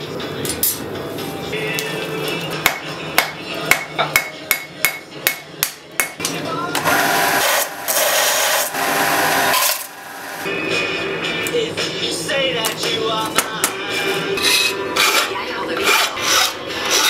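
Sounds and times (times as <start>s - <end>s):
hammer striking steel on anvil: 2.6s - 6.3s
belt sander grinding steel: 6.8s - 10.4s.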